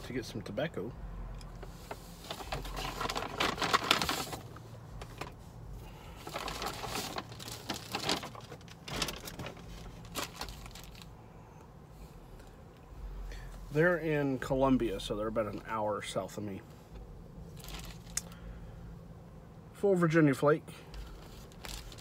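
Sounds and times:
paper bag rustling and crinkling: 1.6s - 11.1s, 17.5s - 18.2s, 20.9s - 22.0s.

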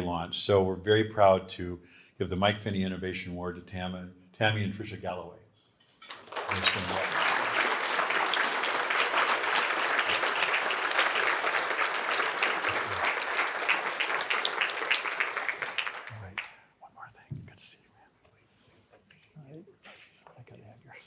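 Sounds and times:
audience applauding: 6.1s - 16.5s.

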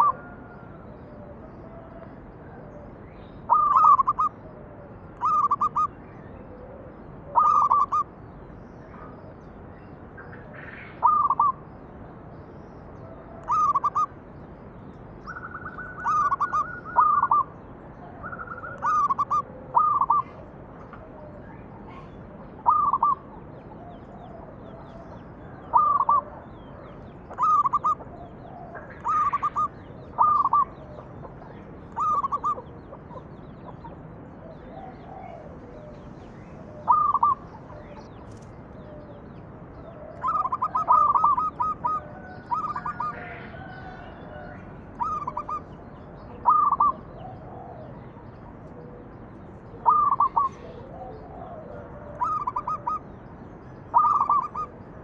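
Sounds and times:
dove cooing: 0.0s - 2.9s, 3.5s - 5.9s, 6.5s - 8.1s, 10.6s - 11.6s, 13.0s - 14.1s, 15.2s - 38.2s, 39.8s - 53.2s, 53.9s - 55.0s.

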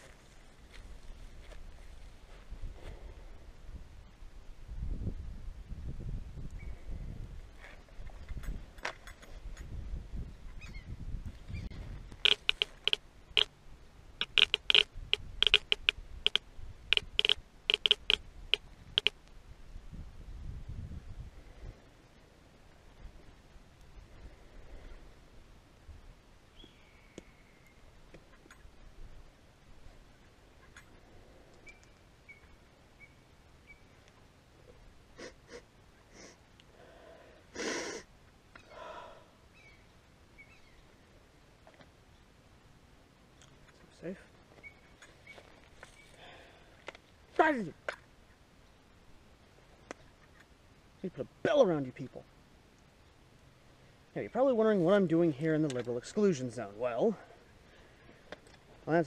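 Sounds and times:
sharp clicks: 12.1s - 13.5s, 14.2s - 19.4s.

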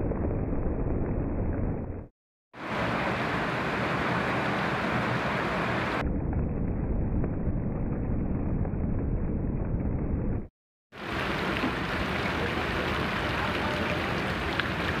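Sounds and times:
heavy rain on pavement and leaves: 2.6s - 6.0s, 10.9s - 15.0s.

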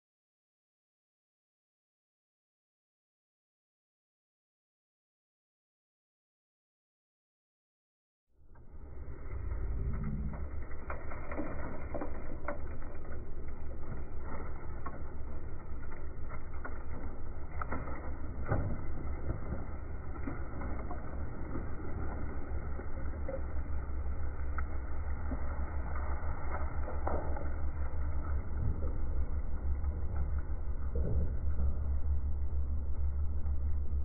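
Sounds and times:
dirt sliding and tumbling: 8.4s - 33.5s
diesel engine low rumble: 8.4s - 34.0s
falling soil and stones clattering: 8.5s - 31.4s.

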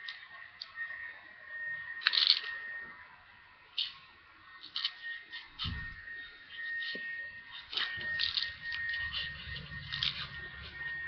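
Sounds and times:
marker squeaking on paper: 4.8s - 11.0s.

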